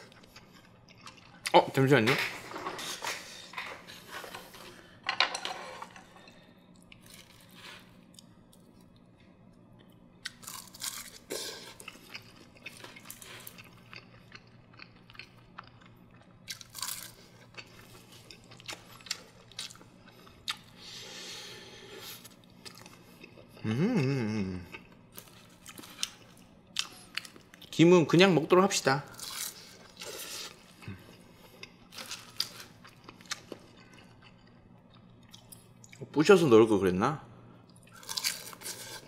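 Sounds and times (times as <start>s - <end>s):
close-up chewing: 9.8s - 20.8s.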